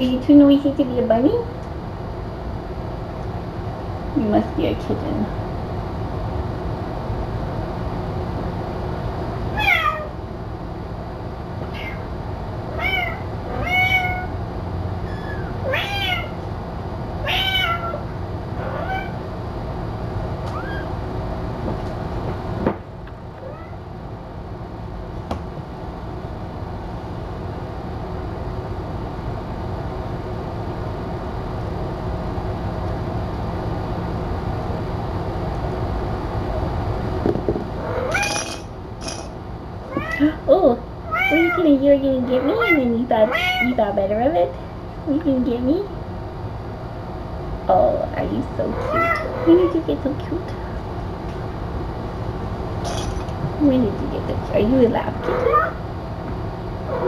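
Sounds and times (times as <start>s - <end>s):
steady low hum: 0.0s - 57.0s
kitten meowing: 9.6s - 10.1s, 11.7s - 12.0s, 12.8s - 14.3s, 15.1s - 16.4s, 17.2s - 18.0s, 20.5s - 20.9s.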